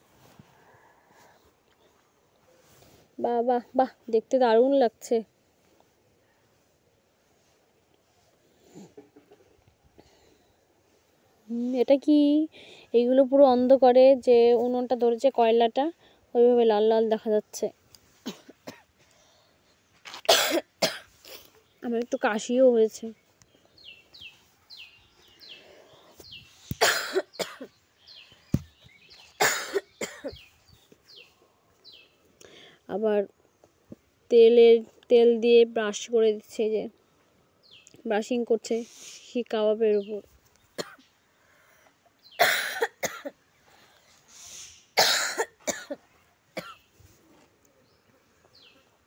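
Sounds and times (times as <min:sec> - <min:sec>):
woman coughing: 0:18.2 - 0:18.9, 0:20.3 - 0:21.1, 0:26.8 - 0:27.8, 0:29.4 - 0:30.4, 0:42.4 - 0:43.4, 0:45.0 - 0:46.0, 0:46.6 - 0:46.8.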